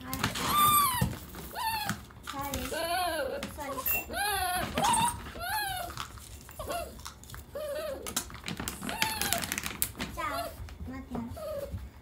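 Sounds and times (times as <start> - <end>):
dog whining: 0.3 - 10.6, 11.3 - 12.0.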